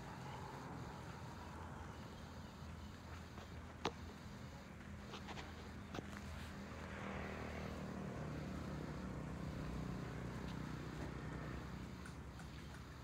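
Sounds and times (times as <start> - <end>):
vehicle engine passing: 5.6 - 13.0.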